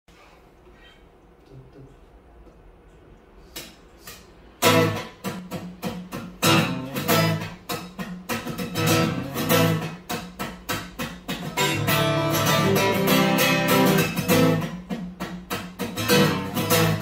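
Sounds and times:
acoustic guitar strumming chords: 0:04.6 - 0:17.0.

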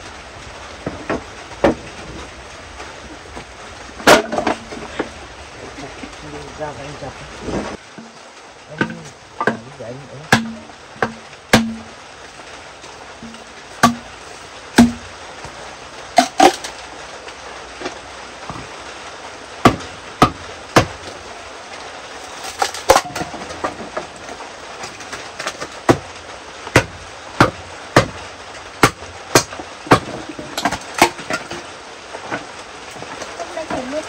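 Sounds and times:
rain hissing: 0:00.0 - 0:34.0
blade chopping wood: 0:04.0 - 0:04.7, 0:10.3 - 0:11.9, 0:13.2 - 0:14.1, 0:14.8 - 0:15.1, 0:19.7 - 0:21.1, 0:22.4 - 0:24.1, 0:24.8 - 0:26.1, 0:26.7 - 0:28.2, 0:28.8 - 0:31.6.

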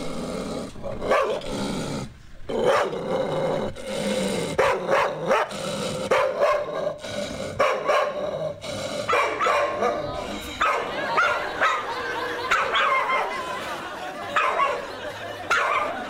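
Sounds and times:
small dog barking over loudspeakers: 0:01.1 - 0:01.4, 0:02.6 - 0:03.0, 0:04.6 - 0:05.5, 0:06.1 - 0:06.8, 0:07.6 - 0:08.2, 0:09.1 - 0:13.5, 0:14.3 - 0:16.0.

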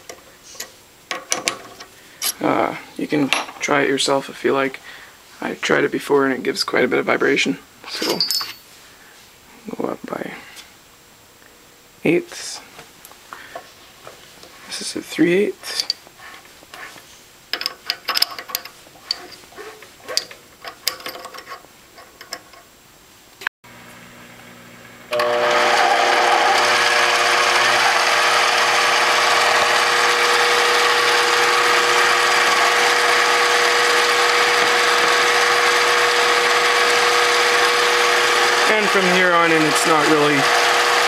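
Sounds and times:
mini lathe running with whine: 0:25.1 - 0:41.0.

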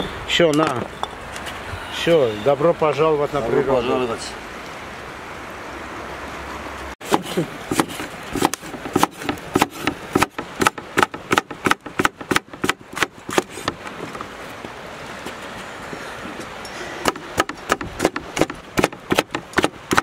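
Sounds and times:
knife chopping on wooden board: 0:07.0 - 0:13.8, 0:17.0 - 0:20.0.

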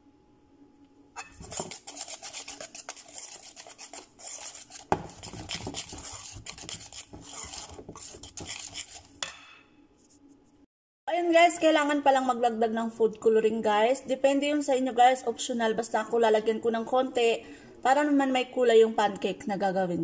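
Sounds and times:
metal spoon scraping a bowl: 0:01.2 - 0:09.4.

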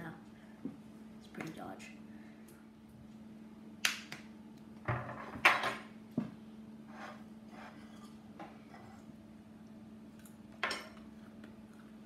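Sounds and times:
knife and fork scraping plate: 0:06.9 - 0:09.1.

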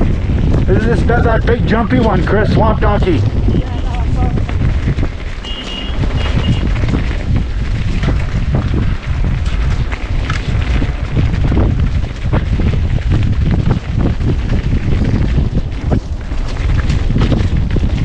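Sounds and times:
bike rattling and knocking: 0:00.0 - 0:18.0
wind buffeting microphone: 0:00.0 - 0:18.0.

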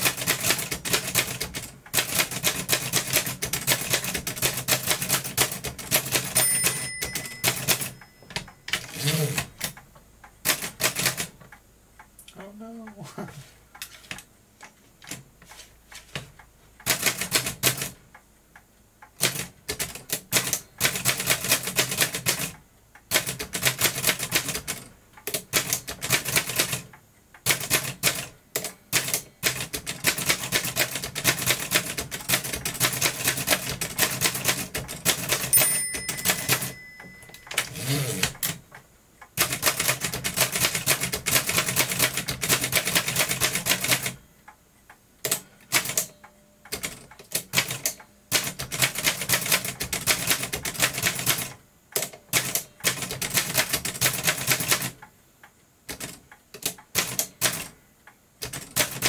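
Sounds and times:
typewriter bell ring: 0:06.2 - 0:09.5, 0:35.4 - 0:38.4.

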